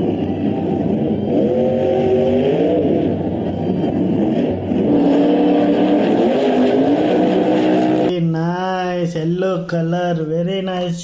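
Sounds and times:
truck engines revving hard: 0:00.0 - 0:08.1.

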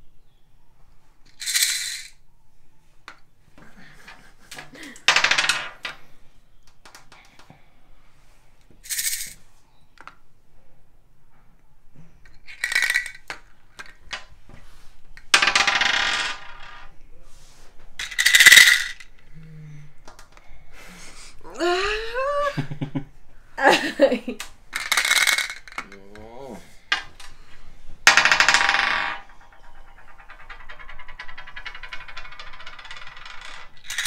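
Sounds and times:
wooden cubes rattling: 0:01.4 - 0:02.1, 0:03.6 - 0:06.1, 0:12.3 - 0:14.3, 0:15.2 - 0:16.8, 0:18.0 - 0:19.3, 0:24.7 - 0:27.4, 0:28.0 - 0:34.0
laughter: 0:03.6 - 0:05.0, 0:22.0 - 0:24.4.

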